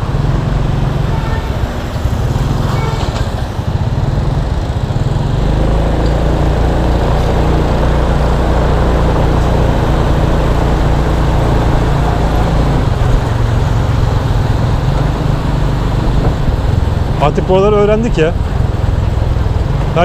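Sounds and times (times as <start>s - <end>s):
motor scooter engine running: 0.0s - 20.0s
wind rumble on microphone: 6.2s - 19.9s.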